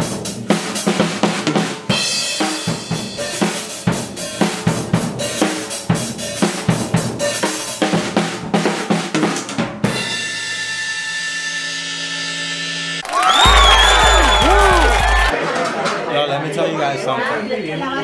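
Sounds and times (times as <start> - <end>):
drum kit beat: 0.0 - 10.3, 13.3 - 15.3.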